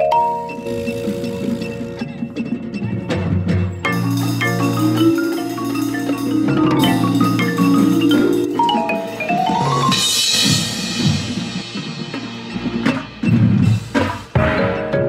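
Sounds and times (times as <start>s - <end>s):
marimbas playing quick runs: 0.0s - 12.9s
cymbal crash: 9.1s - 14.6s.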